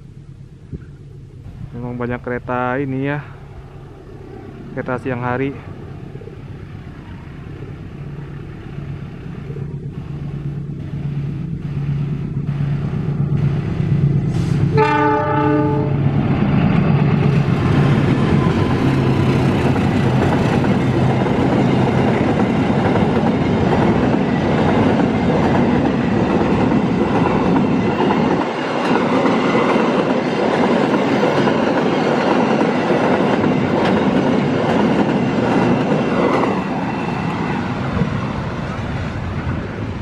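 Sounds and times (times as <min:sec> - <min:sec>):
locomotive engine running: 0:05.8 - 0:40.0
train wagons rolling on rails: 0:06.6 - 0:40.0
locomotive horn: 0:14.4 - 0:16.2.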